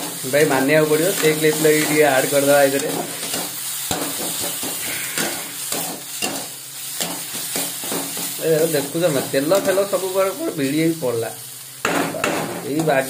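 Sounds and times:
paste sizzling in hot oil: 0.0s - 13.0s
spatula scraping a metal pan: 2.8s - 8.0s.

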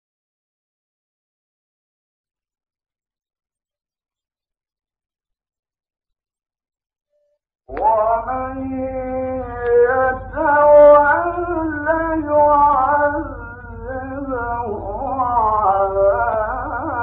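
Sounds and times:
low recording hum: 7.7s - 17.0s
man chanting recitation: 7.7s - 17.0s.

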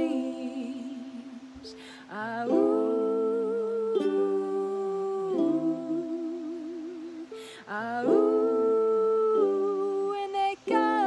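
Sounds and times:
ukulele: 0.0s - 11.0s
woman and man singing in harmony: 0.0s - 11.0s.

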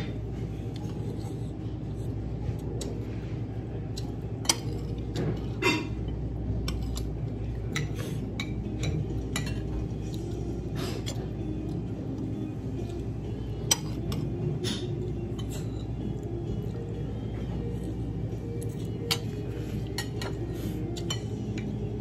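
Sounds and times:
restaurant dining room hum: 0.0s - 22.0s
cutlery clinking on dishes: 4.4s - 10.2s, 13.6s - 15.9s, 18.8s - 21.7s.

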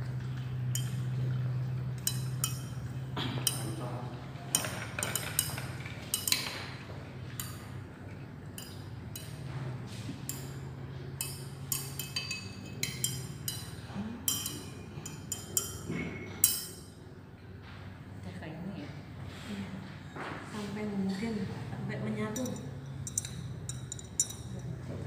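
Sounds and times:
glass rod clinking against beaker: 0.7s - 1.1s, 2.0s - 3.7s, 4.5s - 6.6s, 8.6s - 9.4s, 10.2s - 16.9s, 22.3s - 24.8s.

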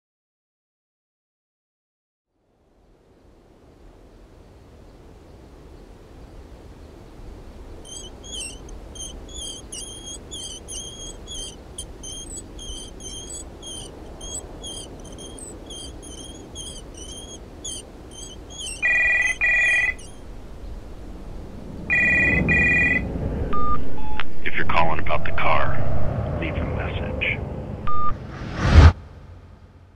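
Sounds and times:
cart wheels squeaking: 7.8s - 20.3s
telephone ringing: 18.8s - 20.0s, 21.9s - 23.0s.

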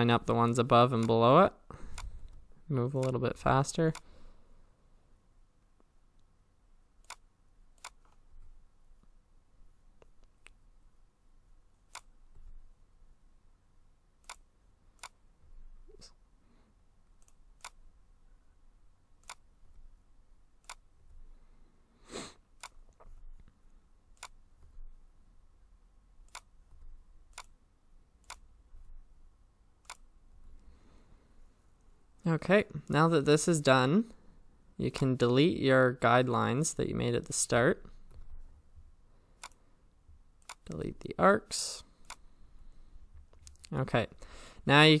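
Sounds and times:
keyboard clicks: 7.0s - 8.2s, 27.3s - 27.6s
computer mouse clicks: 7.0s - 8.3s, 11.8s - 12.5s, 14.2s - 15.2s, 17.2s - 17.8s, 19.2s - 19.8s, 20.6s - 20.9s, 22.6s - 24.8s, 26.2s - 27.6s, 28.2s - 28.9s, 29.8s - 30.7s, 39.4s - 39.6s, 40.4s - 40.8s, 42.0s - 42.3s.

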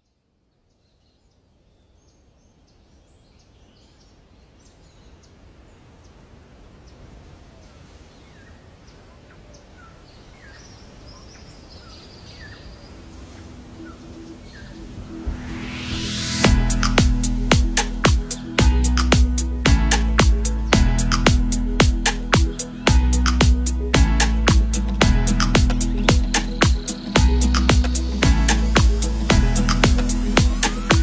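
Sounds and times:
birds chirping: 8.3s - 31.0s
rising whoosh: 13.6s - 31.0s.

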